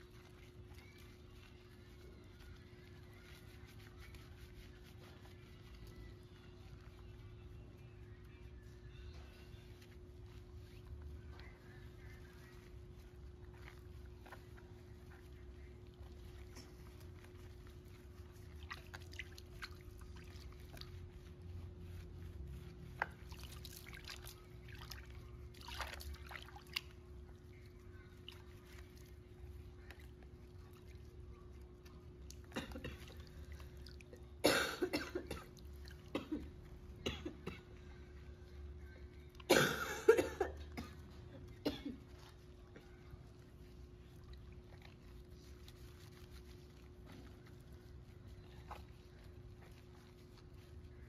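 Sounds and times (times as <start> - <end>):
water sloshing in a plastic basin: 18.3 - 21.0, 23.0 - 27.0.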